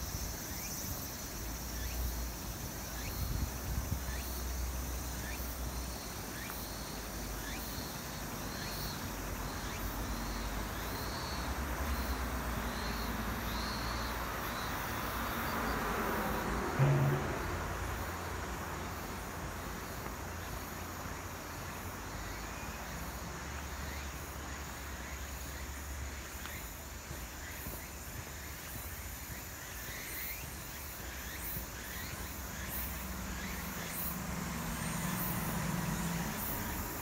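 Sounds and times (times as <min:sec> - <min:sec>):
insect hum: 0:00.0 - 0:37.0
low rumble: 0:16.8 - 0:18.2
low hum: 0:16.8 - 0:18.3.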